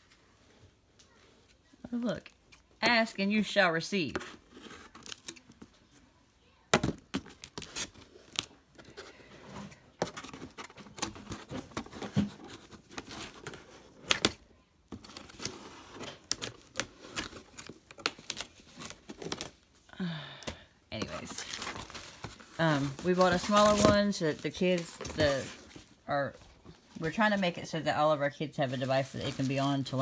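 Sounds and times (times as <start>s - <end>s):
plastic crinkling: 21.0s - 26.0s, 28.6s - 30.0s.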